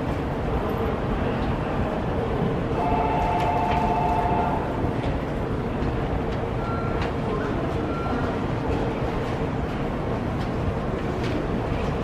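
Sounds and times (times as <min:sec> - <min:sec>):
train rumbling: 0:00.0 - 0:12.0
two-note tone: 0:02.8 - 0:04.6.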